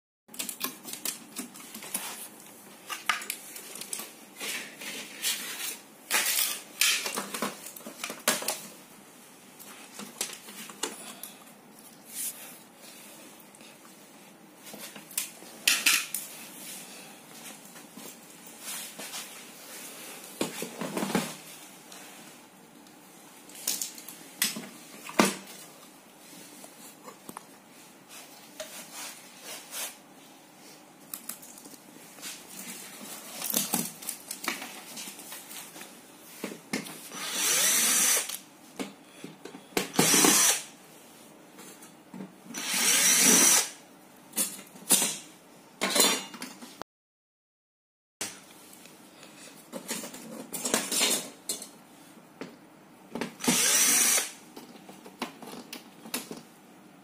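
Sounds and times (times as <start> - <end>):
plastic parts clicking and rustling: 0.3 - 2.3.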